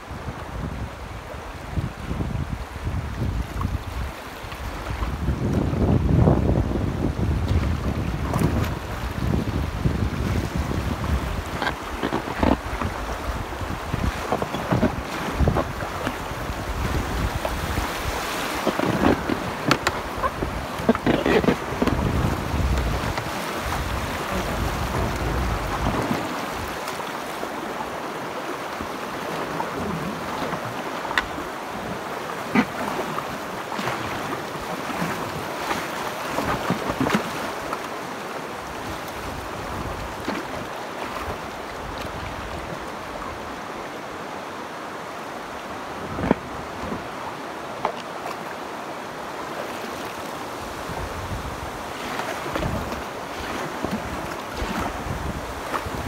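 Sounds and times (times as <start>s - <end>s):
wind on microphone: 0.0s - 26.9s, 38.6s - 43.7s, 45.5s - 47.2s, 50.5s - 56.0s
river water rushing over rocks: 0.0s - 56.0s
knocks and splashes: 7.4s - 27.0s, 32.5s - 37.9s.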